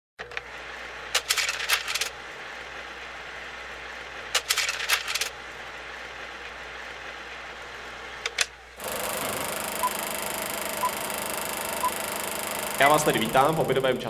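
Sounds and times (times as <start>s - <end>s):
low hum and hiss: 0.3s - 14.0s.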